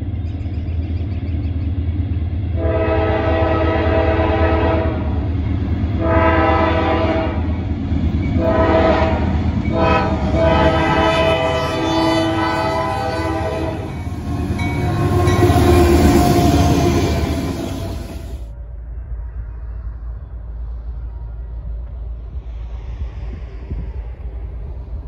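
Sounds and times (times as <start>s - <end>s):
locomotive engine rumbling: 0.0s - 22.2s
locomotive air horn blasts: 2.6s - 5.2s, 6.0s - 7.5s, 8.4s - 18.4s.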